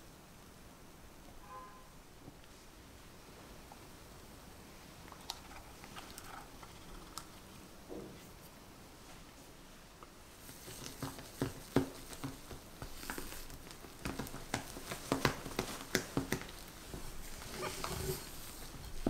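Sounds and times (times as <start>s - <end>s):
spatula squishing batter: 10.4s - 19.0s.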